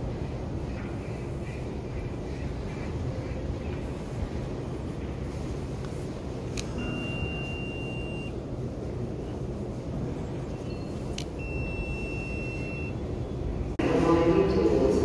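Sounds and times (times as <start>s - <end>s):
low station rumble: 0.0s - 15.0s
card reader error beep: 6.7s - 8.4s, 11.3s - 13.0s.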